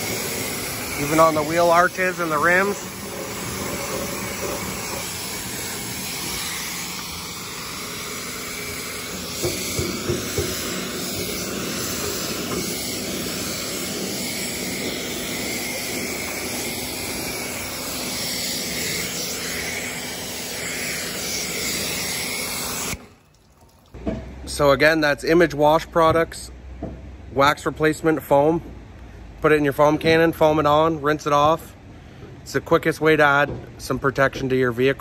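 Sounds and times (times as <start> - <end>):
pressure washer spraying water: 0.0 - 23.8.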